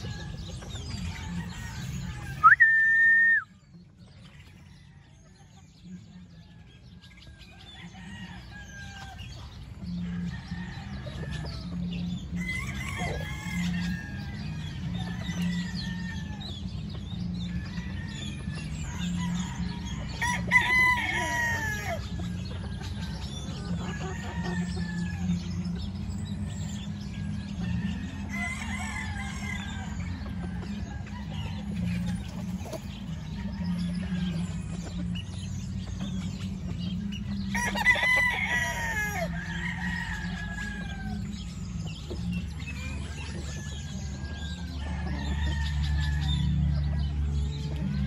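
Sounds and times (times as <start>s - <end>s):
chickens clucking: 0.0s - 48.0s
rooster crowing: 0.4s - 3.4s, 19.1s - 22.1s, 37.5s - 41.4s.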